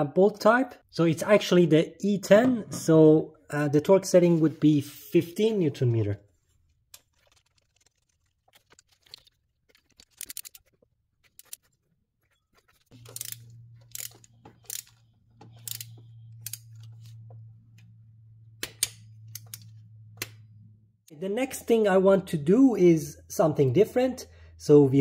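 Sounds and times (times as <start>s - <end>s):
metal tools clinking and clicking: 12.9s - 17.0s.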